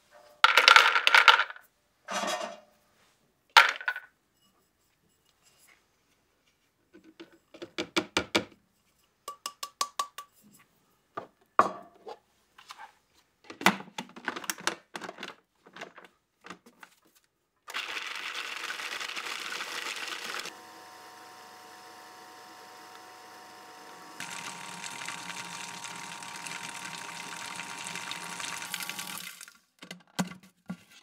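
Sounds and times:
food processor grinding nuts: 17.7s - 29.5s.

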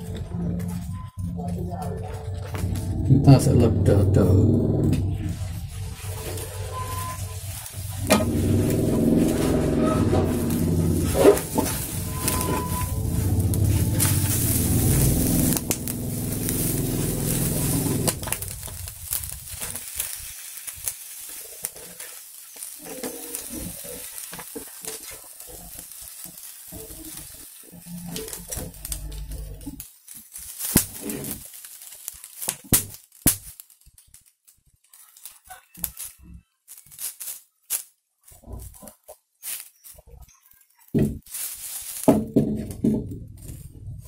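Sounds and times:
loud rumble: 0.0s - 19.6s
chopsticks scraping a frying pan: 5.2s - 29.6s.

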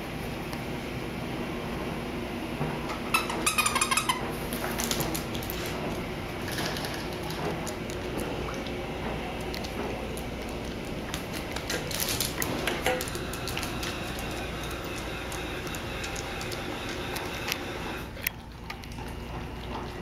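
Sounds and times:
dog claws on hardwood floor: 3.4s - 17.6s.

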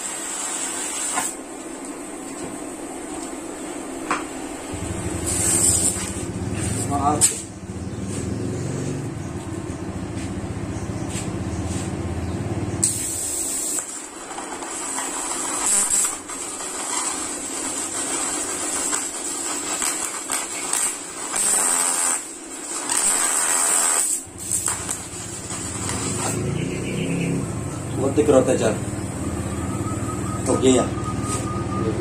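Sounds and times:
welding arc hissing and crackling: 0.0s - 2.5s, 4.1s - 7.6s, 12.8s - 26.5s
high-pitched whine: 2.0s - 11.6s, 22.9s - 32.0s.

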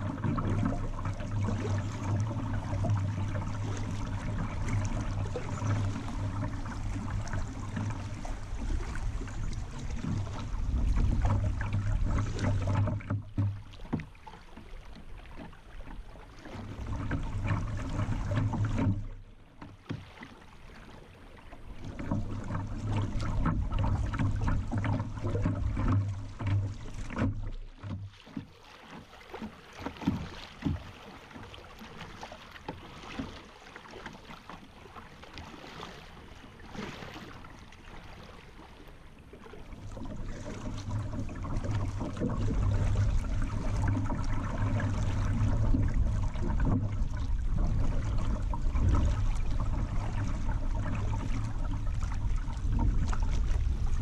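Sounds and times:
river water rippling and splashing: 0.0s - 54.0s
low rumble: 39.9s - 54.0s.

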